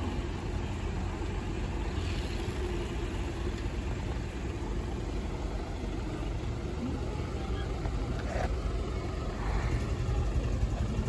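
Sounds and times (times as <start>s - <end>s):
vehicle engines idling: 0.0s - 11.0s.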